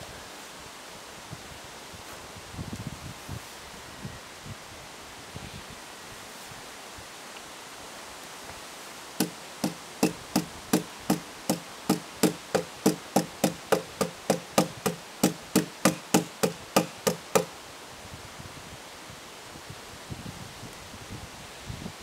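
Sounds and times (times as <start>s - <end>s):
sharp knocks: 9.2s - 17.5s.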